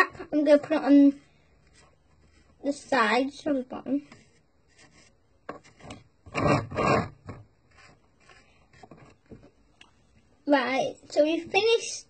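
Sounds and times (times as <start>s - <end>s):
paintbrush scrubbing on plastic: 0.1s - 7.0s.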